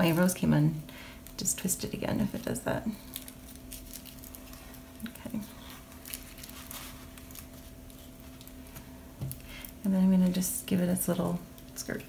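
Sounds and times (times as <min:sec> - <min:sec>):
low steady hum: 0:00.0 - 0:12.0
tissue paper crinkling: 0:02.2 - 0:09.0.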